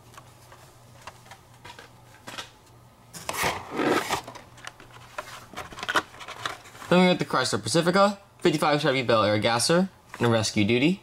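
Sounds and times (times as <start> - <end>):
plastic rustling and rubbing: 3.3 - 7.1.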